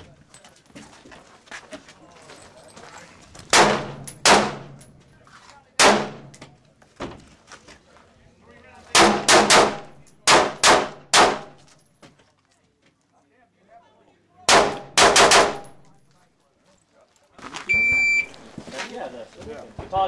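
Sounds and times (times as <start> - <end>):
rifle gunshots with echo: 3.5 - 4.8, 5.8 - 6.3, 8.9 - 11.6, 14.5 - 15.8.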